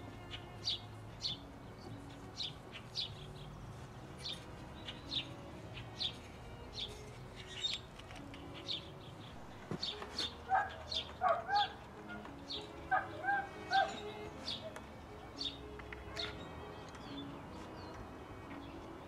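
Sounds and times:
small bird chirping: 0:04.2 - 0:11.7.

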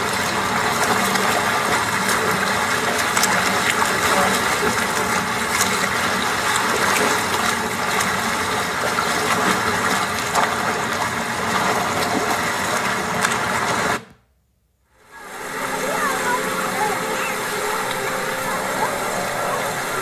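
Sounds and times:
beach wash of noise: 0:15.0 - 0:20.0.

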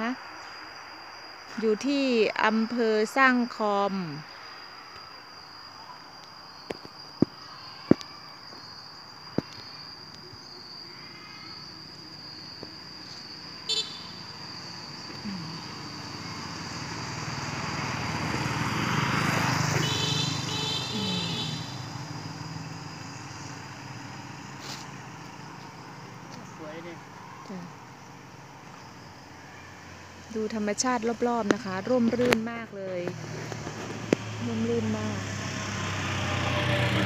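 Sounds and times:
motorcycle passing: 0:13.7 - 0:27.1, 0:29.3 - 0:37.0.

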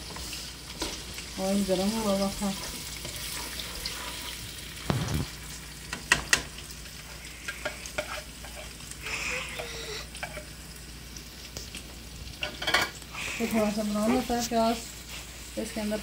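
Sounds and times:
onion sizzling in hot oil: 0:00.0 - 0:16.0
spatula tapping and scraping bowl: 0:07.5 - 0:08.7.

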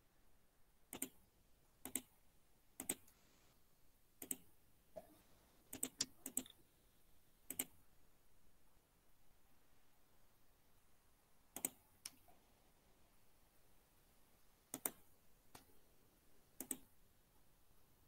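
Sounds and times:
computer mouse clicks: 0:00.9 - 0:01.2, 0:01.8 - 0:02.1, 0:02.8 - 0:03.2, 0:04.2 - 0:04.5, 0:05.7 - 0:06.6, 0:07.5 - 0:07.8, 0:11.5 - 0:12.2, 0:14.7 - 0:15.7, 0:16.6 - 0:16.9.

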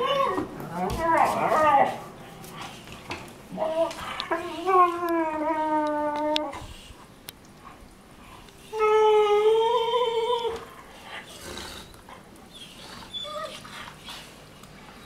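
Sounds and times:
dog whining howl: 0:00.0 - 0:02.0, 0:03.6 - 0:06.6, 0:08.7 - 0:10.7, 0:12.5 - 0:13.7
dogs scuffling on bedding: 0:00.2 - 0:05.0.

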